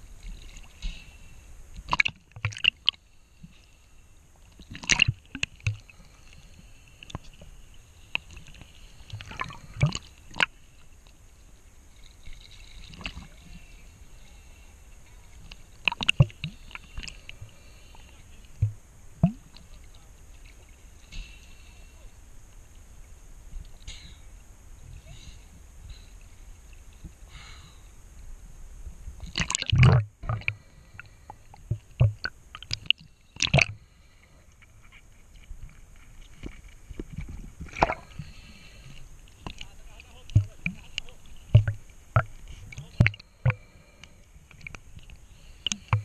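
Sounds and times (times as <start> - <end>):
water splashing: 0.0 - 3.6, 4.4 - 10.8, 11.9 - 13.8, 15.1 - 21.0, 29.2 - 46.0
water sloshing and gurgling: 0.0 - 21.1, 29.0 - 46.0.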